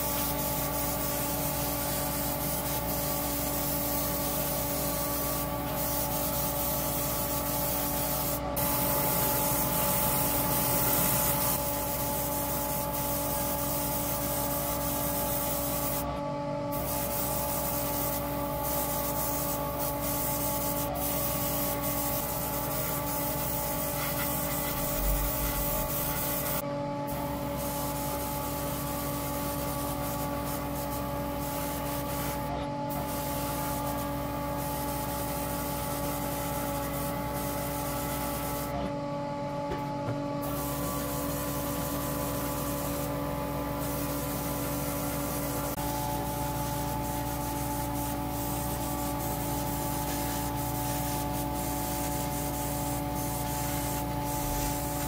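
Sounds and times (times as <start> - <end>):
airbrush hissing: 0.0 - 16.1, 16.7 - 26.6, 27.2 - 38.7, 40.4 - 55.0
extraction fan hum: 0.0 - 27.6.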